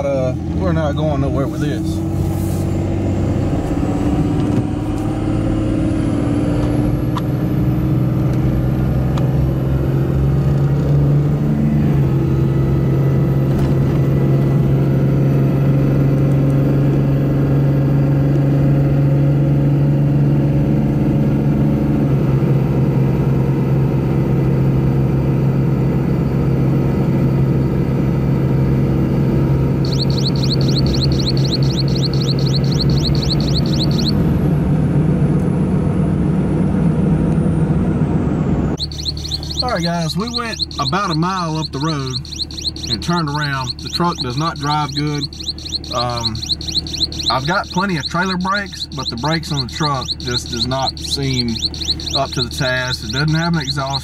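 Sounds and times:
diesel engine pulling hard: 0.0 - 54.0
high turbo whistle: 38.8 - 52.4.

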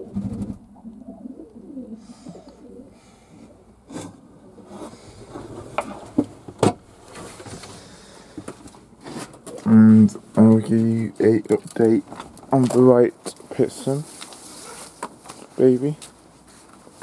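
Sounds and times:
pigeons cooing: 0.0 - 6.0
rustling: 3.9 - 17.0.

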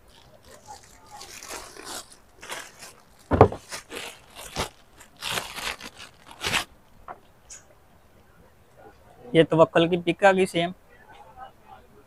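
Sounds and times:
plastic packaging crinkling: 0.0 - 6.7
dull thump: 3.3 - 3.7.

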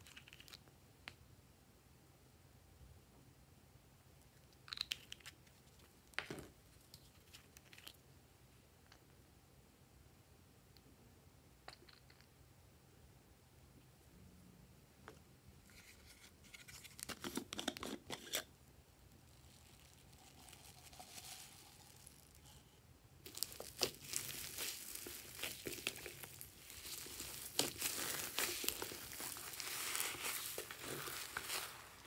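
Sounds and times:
foam beads in slime crackling: 19.2 - 22.6, 23.2 - 32.0.

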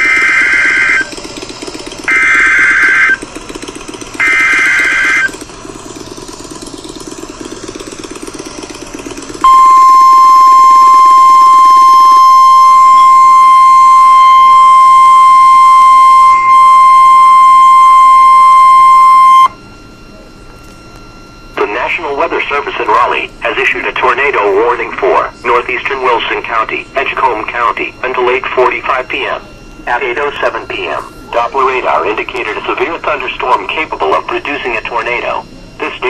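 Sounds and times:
low steady hum: 0.0 - 36.0
steady alarm tone: 0.0 - 36.0
warbling data bursts: 9.5 - 36.0.

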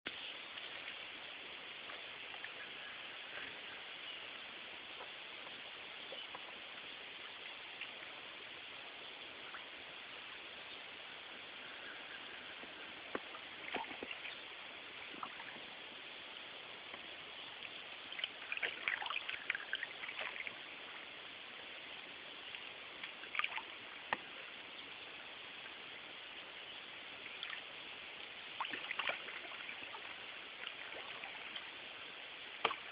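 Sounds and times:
background hiss: 0.1 - 32.9
paddle splashing in water: 12.3 - 15.8, 16.9 - 20.6, 22.5 - 24.4, 28.4 - 31.8, 32.5 - 32.9.

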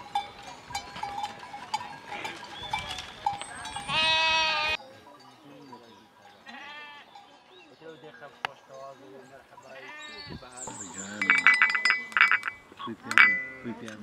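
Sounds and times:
hooves scuffing dry ground: 0.0 - 4.8
animal bells clanking: 0.0 - 14.0
sheep bleating: 3.8 - 4.8, 6.4 - 7.2, 9.7 - 10.3.

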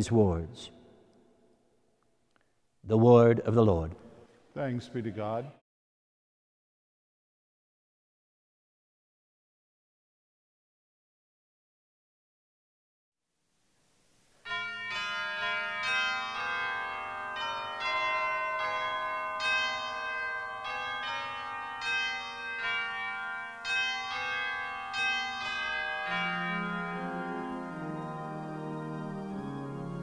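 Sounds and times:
slow organ melody: 14.5 - 30.0.

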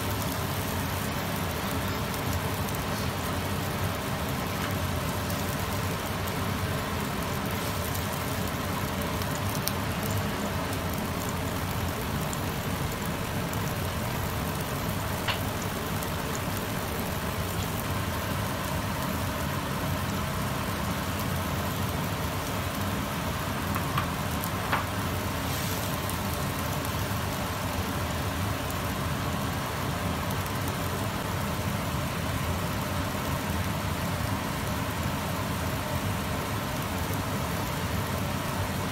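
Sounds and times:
liquid boiling in a wok: 0.0 - 38.9
low steady rumble: 5.2 - 20.2.

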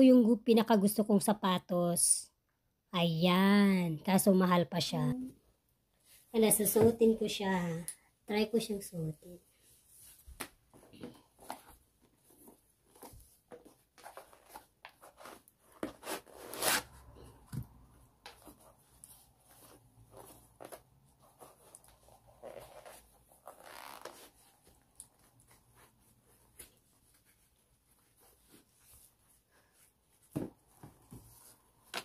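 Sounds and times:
faint rustling of sneaker: 9.4 - 32.0.

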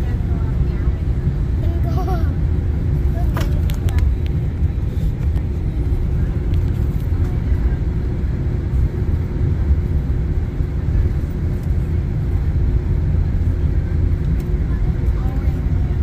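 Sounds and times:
jet engine low rumble: 0.0 - 16.0.

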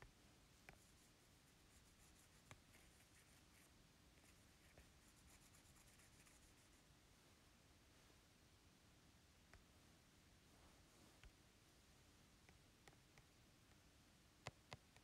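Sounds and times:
low hiss: 0.0 - 15.0
scratchy rubbing on glass screen: 0.7 - 6.8.

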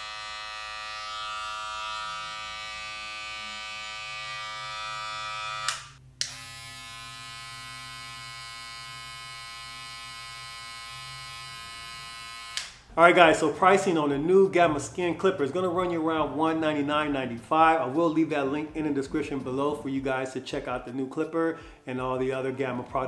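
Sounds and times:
hair clippers buzzing: 0.0 - 12.9.

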